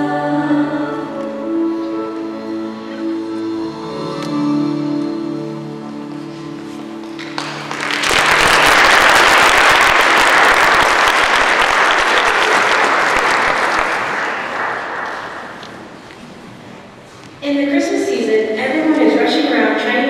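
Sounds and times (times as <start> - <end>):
held music notes: 0.0 - 8.1
audience applauding: 7.1 - 16.0.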